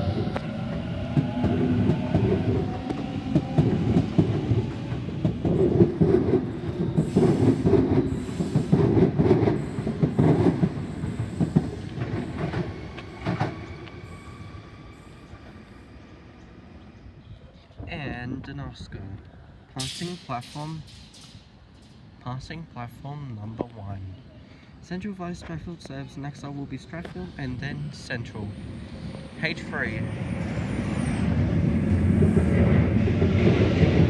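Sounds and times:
train wheels rumbling on rails: 0.0s - 16.0s, 19.8s - 22.6s, 26.6s - 34.0s
clickety-clack over rail joints: 0.2s - 14.2s, 31.3s - 34.0s.

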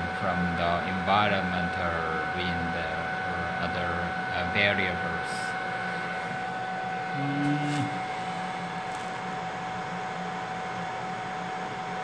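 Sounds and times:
hot-air heater blowing hiss: 0.0s - 12.0s
short low hum: 5.4s - 9.3s.

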